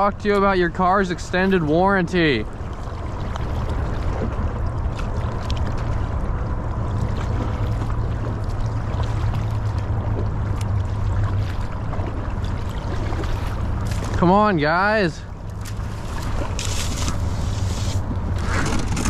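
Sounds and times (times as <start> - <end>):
low rumble: 2.4 - 19.0
creek water rushing: 5.7 - 18.5.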